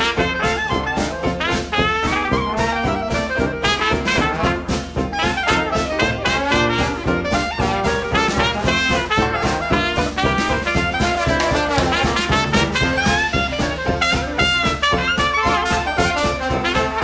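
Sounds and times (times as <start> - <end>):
upbeat brass swing music: 0.0 - 17.0.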